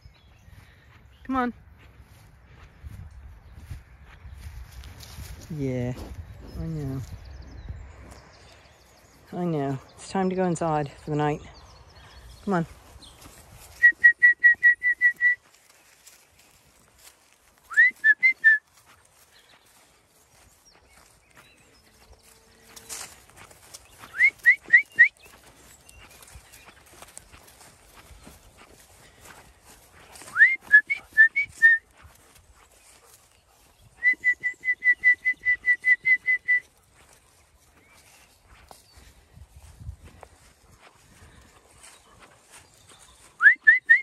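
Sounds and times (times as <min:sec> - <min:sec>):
person whistling: 0:13.8 - 0:15.4, 0:17.7 - 0:18.6, 0:24.1 - 0:25.1, 0:30.3 - 0:31.8, 0:34.0 - 0:36.7, 0:43.4 - 0:44.0.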